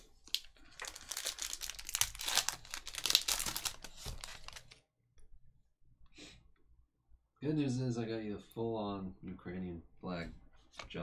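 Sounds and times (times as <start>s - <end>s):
foil wrapper crinkling and tearing: 0.2s - 4.8s.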